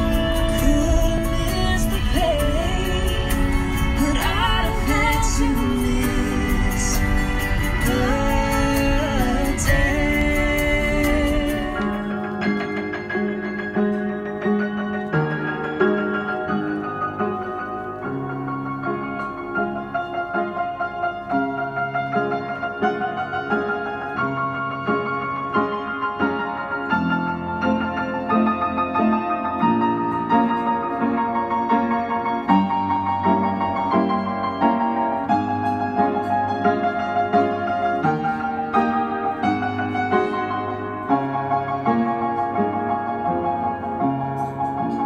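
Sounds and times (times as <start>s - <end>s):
upright piano chords and melody: 0.0s - 45.0s.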